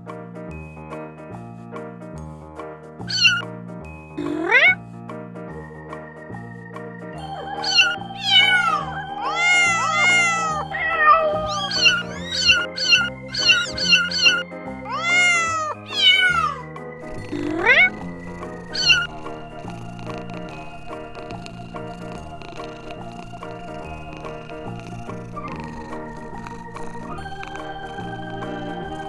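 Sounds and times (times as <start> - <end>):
background music: 0.0 - 29.0
kittens mewing: 3.0 - 3.4, 4.2 - 4.8, 7.3 - 20.7, 22.2 - 27.6.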